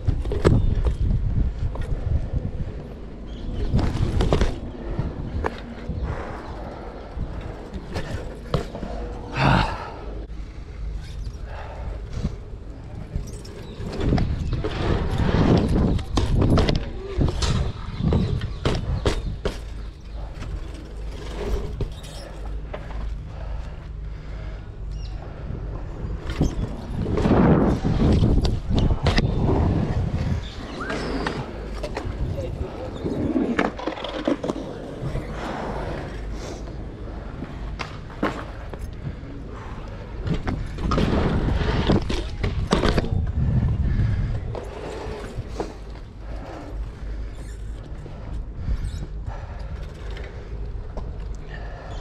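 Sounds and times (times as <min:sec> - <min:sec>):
bike rattling: 0:00.0 - 0:10.0, 0:10.6 - 0:51.9
bike tyres rolling on concrete: 0:00.0 - 0:52.0
bike knocking and clacking: 0:13.2 - 0:23.2.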